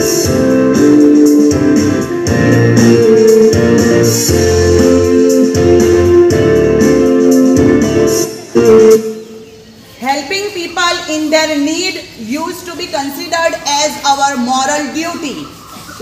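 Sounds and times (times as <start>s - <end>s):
keyboard background music with beat: 0.0s - 9.4s.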